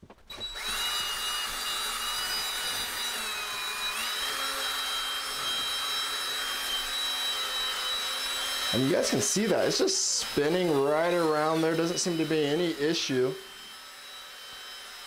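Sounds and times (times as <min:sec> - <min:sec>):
cordless drill motor whine: 0:00.3 - 0:15.0
bristles scrubbing metal: 0:01.5 - 0:13.5.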